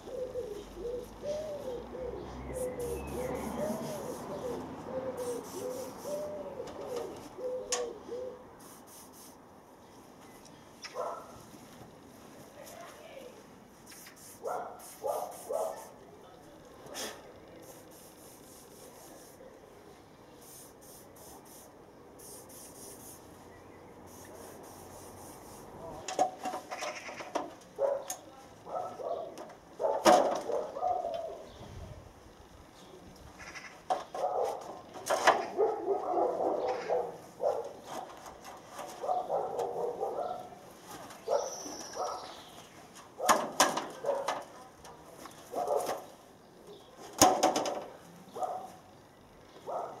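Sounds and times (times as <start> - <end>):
bird calling: 0.0 - 8.4.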